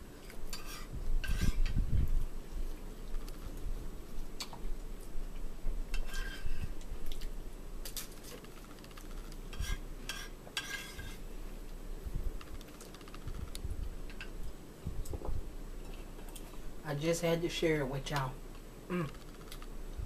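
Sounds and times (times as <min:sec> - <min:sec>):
low room hum: 0:00.0 - 0:20.0
spoons scraping plastic bowls: 0:08.4 - 0:11.2.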